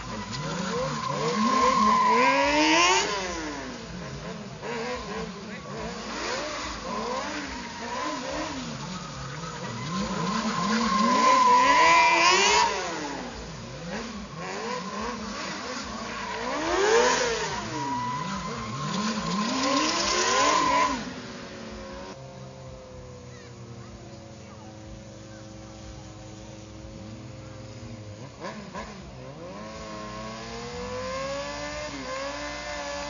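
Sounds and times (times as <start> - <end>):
motorcycle engines revving: 0.0 - 33.0
tire squealing: 0.0 - 33.0.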